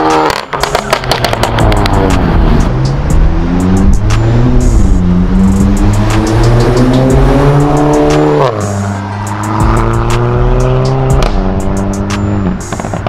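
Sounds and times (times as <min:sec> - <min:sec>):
background music with beat: 0:00.0 - 0:13.0.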